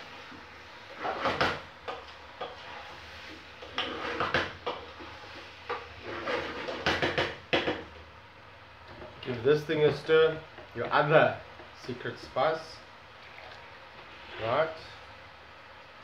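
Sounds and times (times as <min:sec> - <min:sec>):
wooden spoon stirring in plastic jug: 0:00.0 - 0:07.9, 0:08.8 - 0:12.2.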